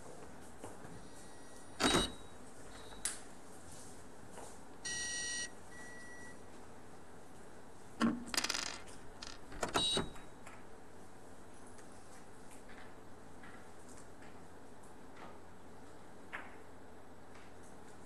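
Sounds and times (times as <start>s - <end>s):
electronic scoreboard beep: 4.9s - 6.4s
billiard balls clicking: 8.0s - 9.6s.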